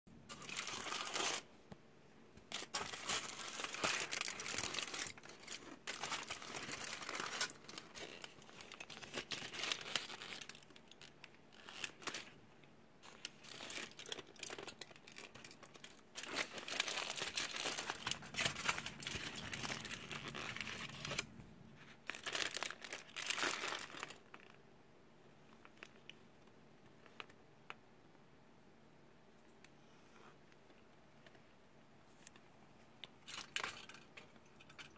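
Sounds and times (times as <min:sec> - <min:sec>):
foil and paper wrapper crinkling: 0:00.3 - 0:01.5, 0:02.5 - 0:12.4, 0:13.0 - 0:24.6, 0:33.2 - 0:34.9.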